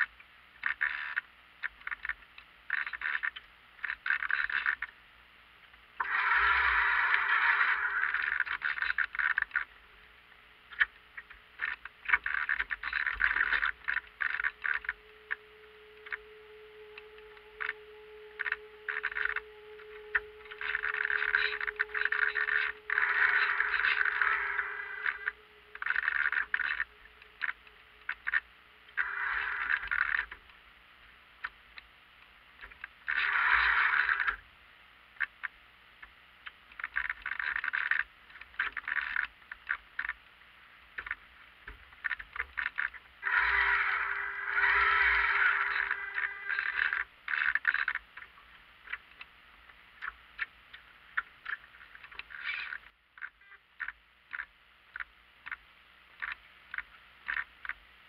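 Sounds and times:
faint steady hum: 0.0s - 58.0s.

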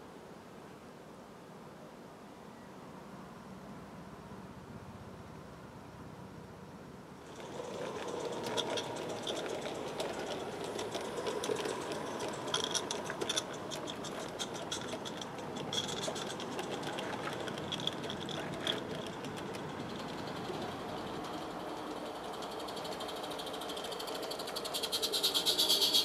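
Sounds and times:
small wheels clicking on track: 7.2s - 26.0s.

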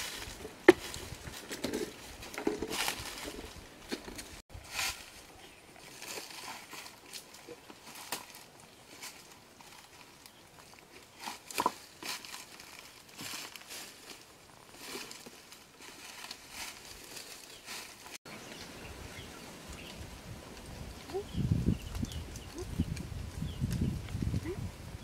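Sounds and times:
footsteps on dry leaves: 0.0s - 18.3s.

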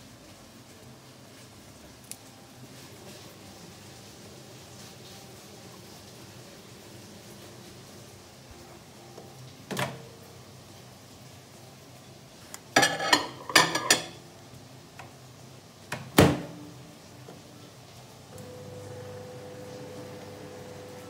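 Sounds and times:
plate clattering on turntable: 12.8s - 14.2s.

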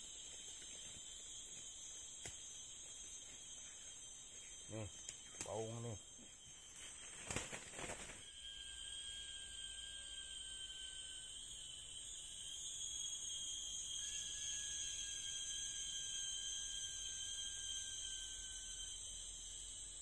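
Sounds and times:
lower steady tone: 0.0s - 20.0s
shrill insect chorus: 0.0s - 20.0s.

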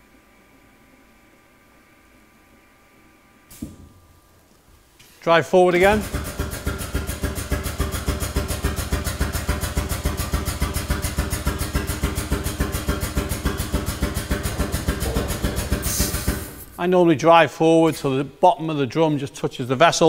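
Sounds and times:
air pump pulsing: 5.7s - 16.8s.

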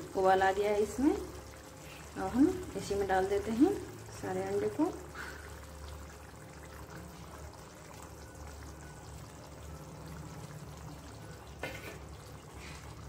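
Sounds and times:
gravy bubbling in a pan: 0.0s - 13.0s.

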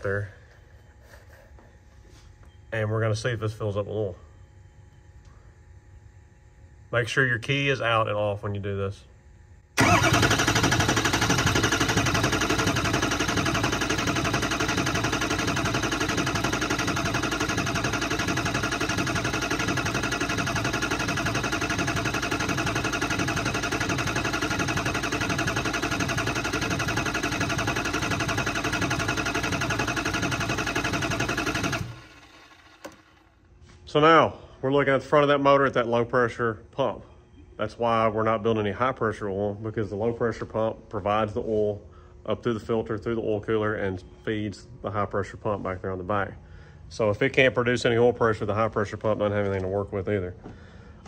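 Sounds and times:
diesel engine cranking: 9.8s - 33.3s.

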